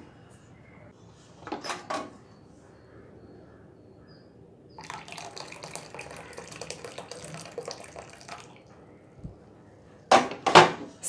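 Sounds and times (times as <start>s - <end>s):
water pouring into steel bowl: 4.8s - 8.7s.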